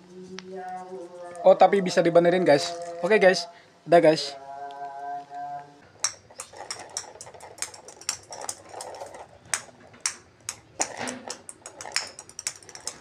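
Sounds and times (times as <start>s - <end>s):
plastic balls bouncing on tile: 6.0s - 13.0s.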